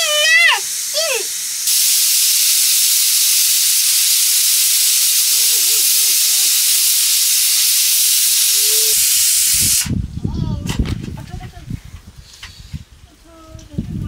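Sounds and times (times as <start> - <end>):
pressure cooker steam hissing: 0.0 - 10.0.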